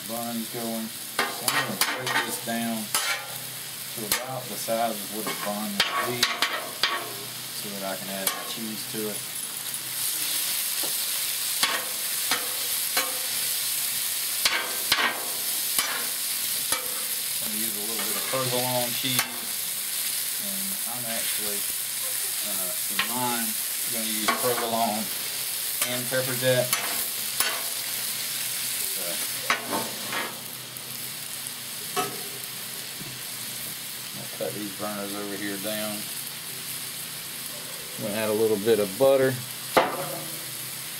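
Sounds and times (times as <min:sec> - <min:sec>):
chicken sizzling on griddle: 0:00.0 - 0:40.9
metal spatula scraping griddle: 0:01.2 - 0:03.4, 0:04.0 - 0:07.3, 0:11.6 - 0:13.5, 0:14.4 - 0:19.6, 0:25.8 - 0:27.8, 0:29.4 - 0:30.5.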